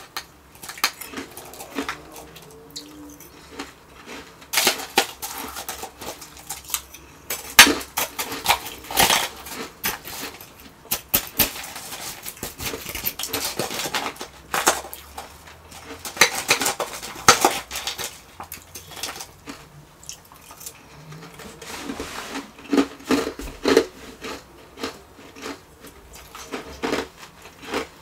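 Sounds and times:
crunching ice: 0.0s - 28.0s
metal spoon scraping metal bowl: 4.5s - 19.3s.

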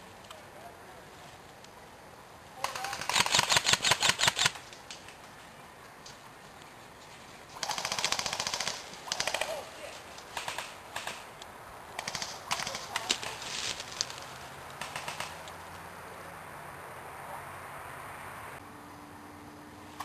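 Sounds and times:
airsoft guns firing bursts: 2.6s - 4.6s, 7.6s - 11.3s, 12.0s - 13.4s, 14.8s - 15.4s.

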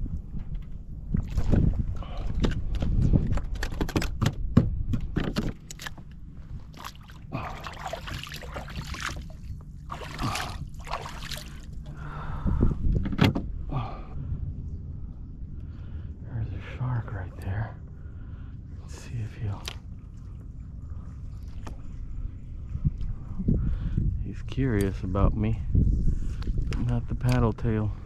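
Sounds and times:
wind rumbling on microphone: 0.0s - 28.0s
water sloshing and splashing: 1.0s - 4.2s, 5.1s - 12.4s, 18.8s - 23.3s.

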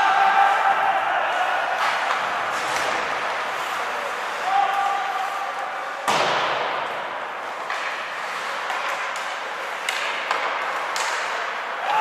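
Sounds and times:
sticks and puck clacking: 0.0s - 12.0s
puck striking boards: 1.8s - 3.4s, 4.7s - 12.0s.

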